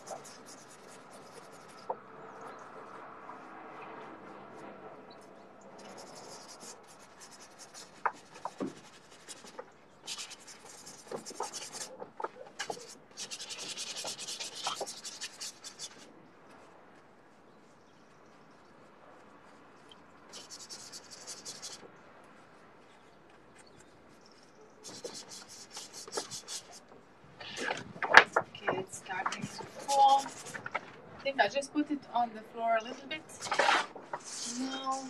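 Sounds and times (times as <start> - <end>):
paintbrush scrubbing canvas: 0.0 - 4.6, 5.8 - 30.9, 33.0 - 35.0.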